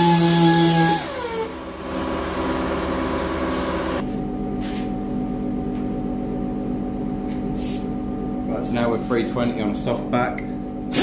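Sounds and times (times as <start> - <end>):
steady machine hum: 0.0 - 11.0.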